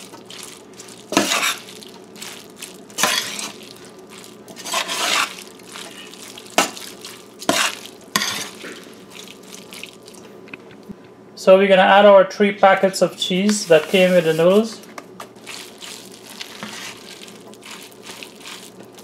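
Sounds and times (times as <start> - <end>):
utensil stirring pasta in metal bowl: 0.0 - 10.2, 13.2 - 19.0.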